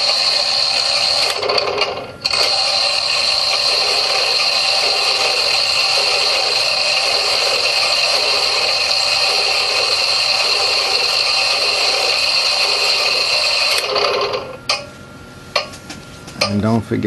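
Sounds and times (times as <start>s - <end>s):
loud steady hiss: 0.0s - 1.5s, 2.2s - 14.0s
high whining tones: 0.0s - 14.9s.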